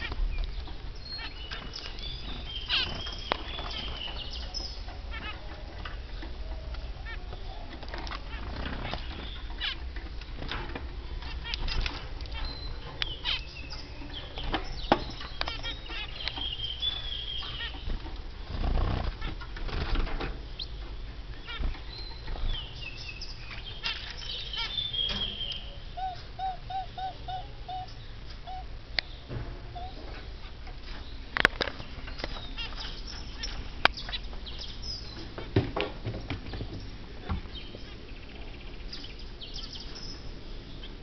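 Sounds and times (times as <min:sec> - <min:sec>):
birds fluttering wings: 0:07.0 - 0:12.4, 0:17.6 - 0:20.4.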